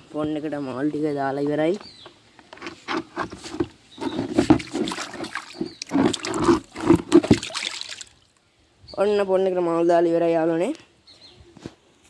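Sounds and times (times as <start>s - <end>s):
water sloshing and splashing: 2.9s - 8.4s.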